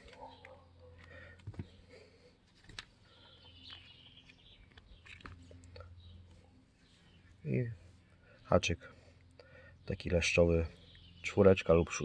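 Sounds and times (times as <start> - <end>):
low steady hum: 0.0 - 12.0
faint bird chirps: 3.0 - 12.0.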